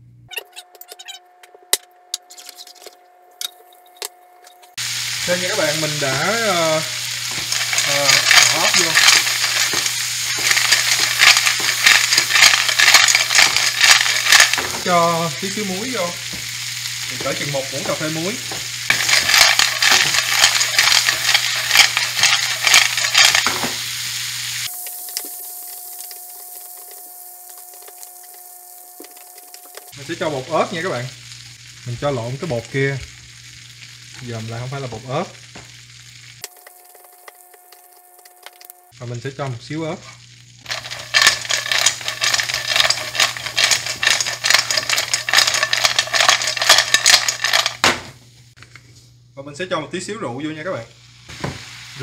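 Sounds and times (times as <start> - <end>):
snails sizzling in frying pan: 4.7 - 48.6, 50.0 - 52.0
shells rattling against pan: 5.2 - 24.0, 40.7 - 47.9.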